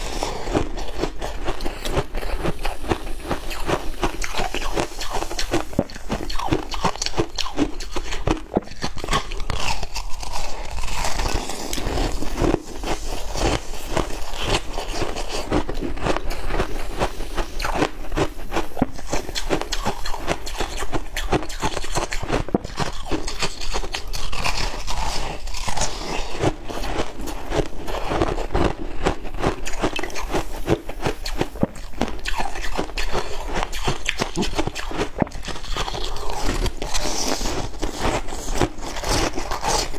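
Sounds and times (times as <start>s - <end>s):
crunching ice: 0.0s - 39.9s.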